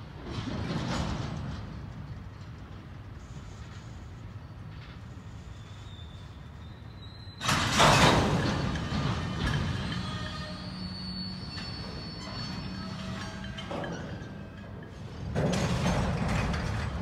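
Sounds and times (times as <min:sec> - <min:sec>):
freight train rumbling past: 0:00.0 - 0:17.0
wheels squealing on rails: 0:03.1 - 0:17.0.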